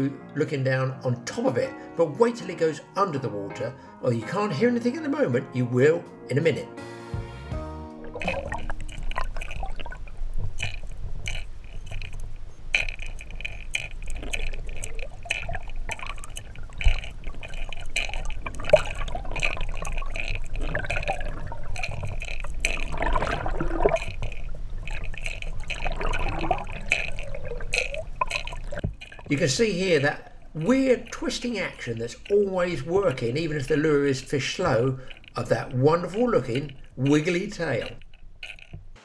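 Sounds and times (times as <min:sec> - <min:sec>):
water bubbling and gurgling: 0:07.8 - 0:38.9
lure rattling underwater: 0:07.9 - 0:39.0.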